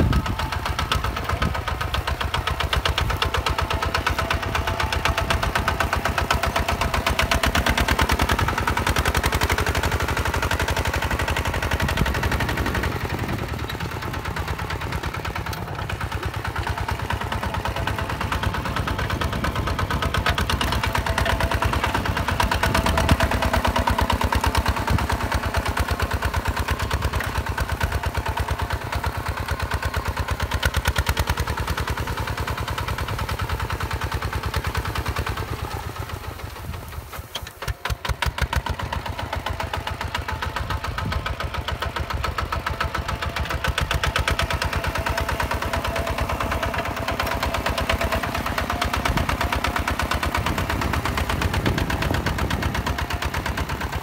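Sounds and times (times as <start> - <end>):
diesel tractor engine chugging: 0.0 - 54.0.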